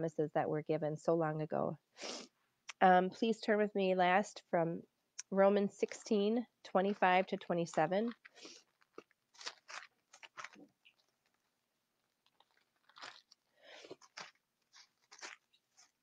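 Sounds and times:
person sniffing: 2.0 - 2.3
thin pages being turned: 7.7 - 16.0.

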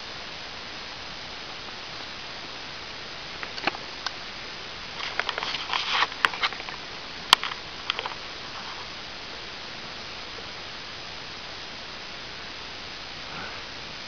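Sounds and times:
crackling: 0.0 - 14.0
steady hiss: 0.0 - 14.0
camera handling clicks and rustles: 3.4 - 3.8, 5.0 - 8.2.

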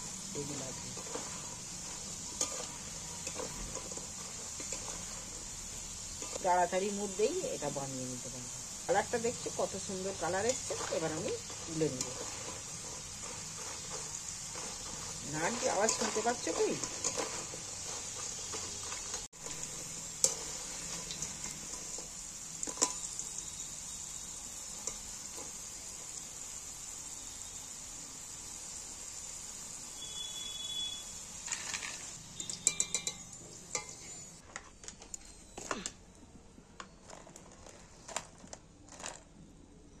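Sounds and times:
wire strainer clinking: 0.0 - 8.2, 8.8 - 23.7, 31.4 - 34.3
potatoes sizzling in hot oil: 0.0 - 35.5
metal spatula scraping pan: 0.1 - 6.6, 9.1 - 23.1, 31.5 - 34.5.

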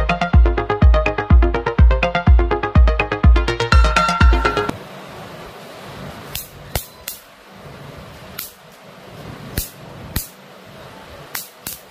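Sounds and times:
electric spark snaps: 6.3 - 7.3, 8.3 - 8.9, 9.5 - 10.4, 11.3 - 11.9.

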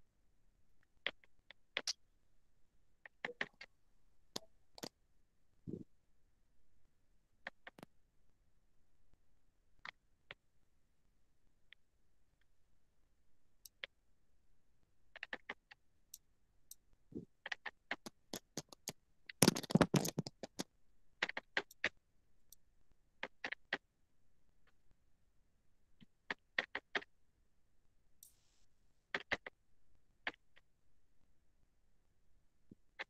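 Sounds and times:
mouse and keyboard clicks: 3.0 - 3.7, 17.4 - 21.9, 29.1 - 29.5.

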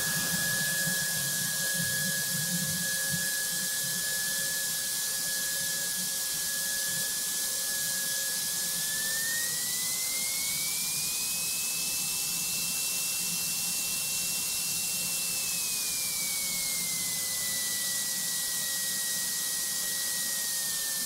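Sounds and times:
aircraft piston engine running: 0.0 - 6.5
high engine whine: 0.0 - 7.1.

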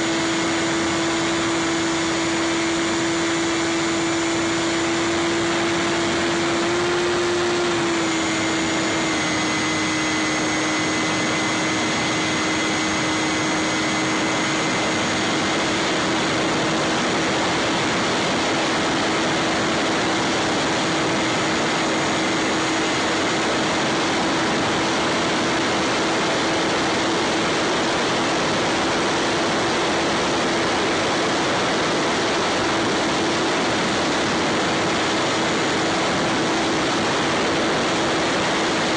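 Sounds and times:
electric motor droning whine: 0.0 - 38.9.

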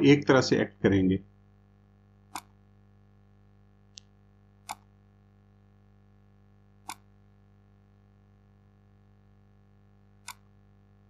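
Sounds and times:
faint steady hum: 0.0 - 11.0
computer mouse clicking: 2.3 - 2.6, 4.0 - 4.9, 6.8 - 7.1, 10.2 - 10.5.

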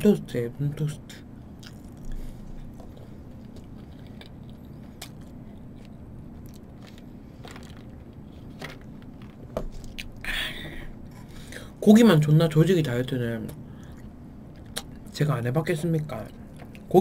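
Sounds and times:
low hum: 0.0 - 17.0
person chewing toast: 1.5 - 10.2, 13.7 - 15.1
soft mouth clicks: 13.9 - 15.0.

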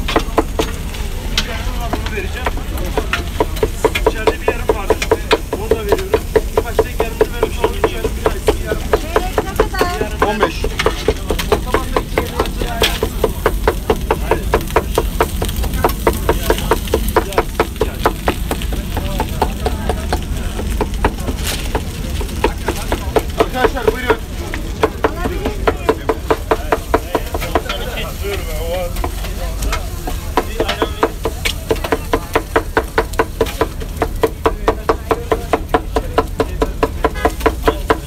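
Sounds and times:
meat sizzling: 0.0 - 38.0
metal blade chopping on griddle: 0.0 - 38.0.

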